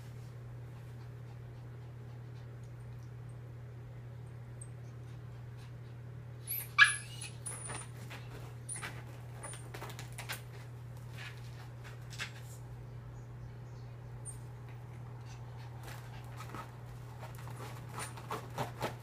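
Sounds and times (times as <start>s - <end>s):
dog crying: 6.5s - 7.6s.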